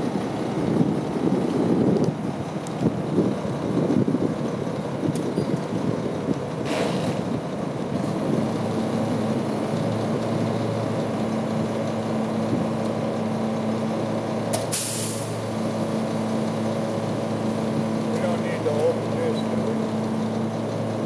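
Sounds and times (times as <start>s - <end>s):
truck diesel engine idling: 0.0s - 21.0s
air brake hiss: 14.6s - 15.4s.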